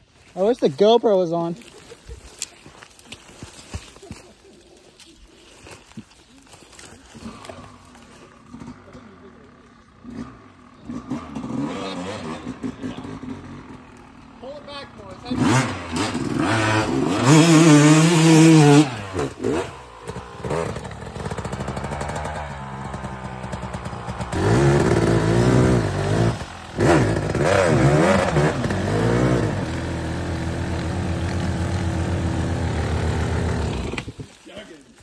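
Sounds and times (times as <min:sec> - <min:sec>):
dirt bike engine revving: 0:07.2 - 0:34.4.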